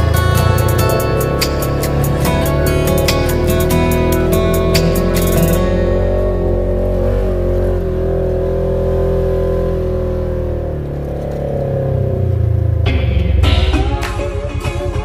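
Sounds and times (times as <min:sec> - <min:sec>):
off-road vehicle engine running: 0:00.0 - 0:15.0.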